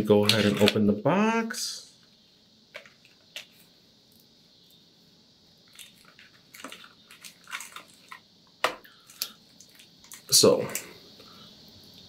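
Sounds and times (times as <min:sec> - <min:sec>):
soft crinkling and tapping: 0:02.0 - 0:04.3, 0:05.7 - 0:10.9.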